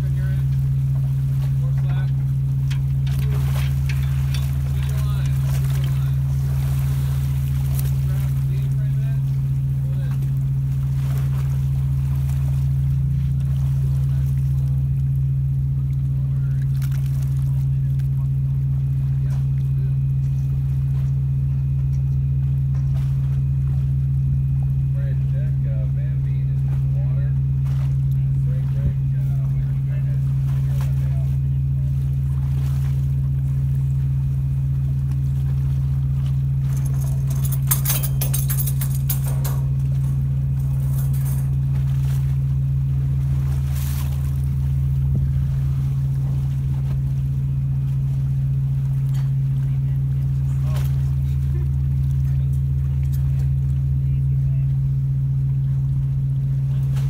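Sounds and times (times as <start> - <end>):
ship machinery humming: 0.0 - 57.0
metallic clinks and jangles: 36.7 - 39.7.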